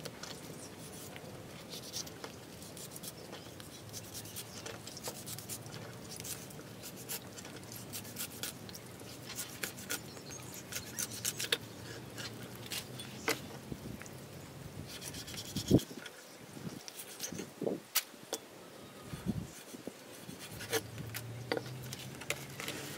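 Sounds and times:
cleaver scraping through fish: 0.4s - 13.4s.

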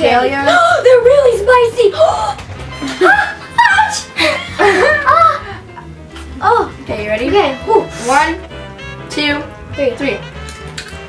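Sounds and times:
background music: 0.0s - 11.0s
girl laughing: 2.8s - 5.9s.

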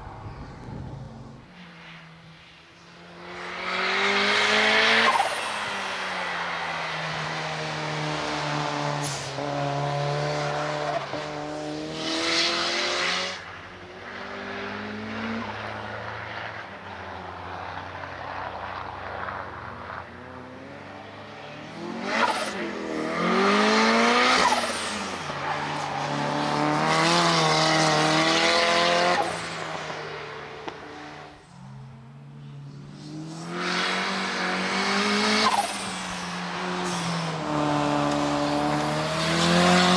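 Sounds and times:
race car engine revving: 20.4s - 32.1s, 32.8s - 39.9s.

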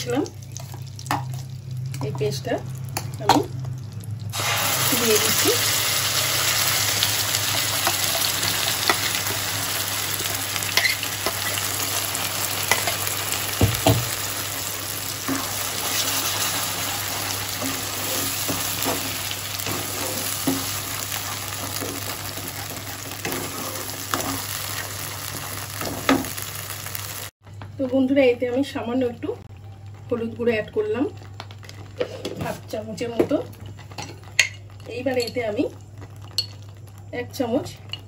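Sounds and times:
paste sizzling in hot oil: 4.3s - 27.3s.

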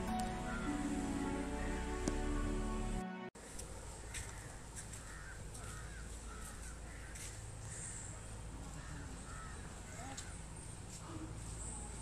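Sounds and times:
crows cawing: 4.0s - 8.1s, 8.7s - 10.4s.

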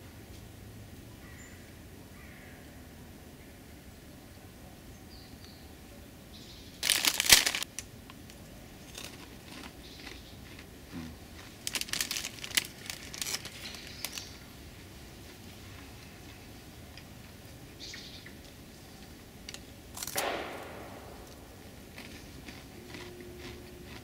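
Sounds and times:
plastic snack bag crinkling: 6.8s - 7.7s, 8.9s - 10.6s, 11.3s - 14.4s, 21.2s - 24.0s.

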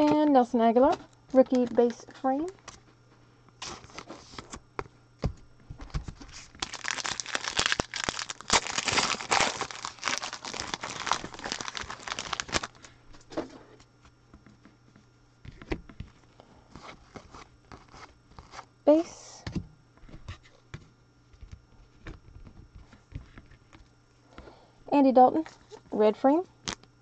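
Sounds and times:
wrapper tearing and crinkling: 6.2s - 12.9s.

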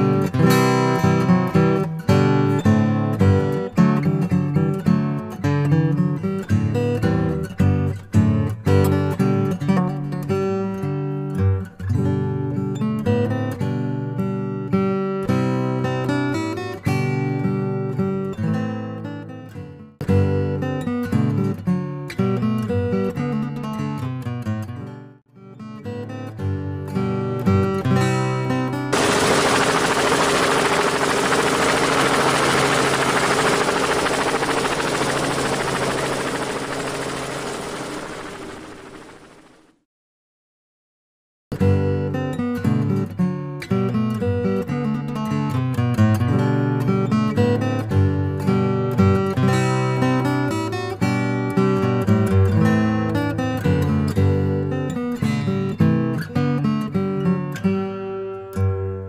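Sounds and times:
strummed acoustic guitar: 0.0s - 28.9s, 41.5s - 59.0s
helicopter rotor and engine: 28.9s - 39.8s.

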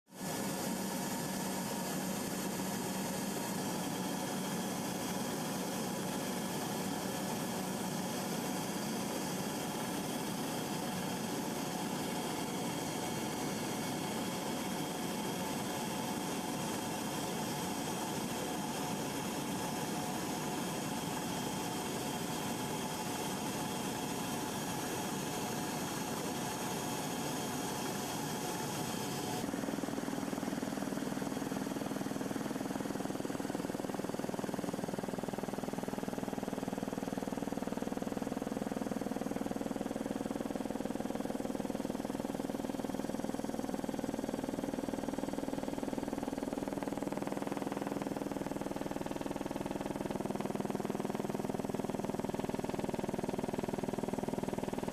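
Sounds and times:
aircraft cabin engine drone: 0.4s - 30.6s.

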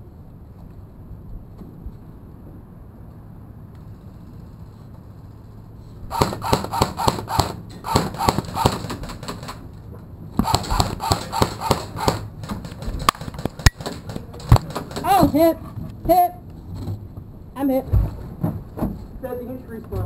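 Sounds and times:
airsoft rifle fire: 6.1s - 9.6s, 10.4s - 15.3s.

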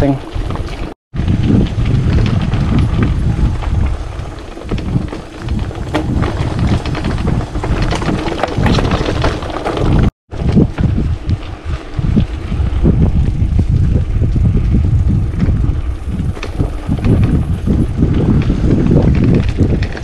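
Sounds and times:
wind rumble on microphone: 0.0s - 20.0s
bike frame rattling and knocking: 4.6s - 10.1s.

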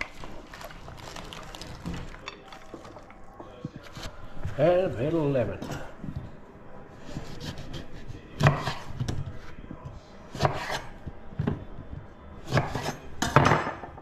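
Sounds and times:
knife chopping on a chopping board: 7.0s - 9.5s, 10.3s - 13.8s.

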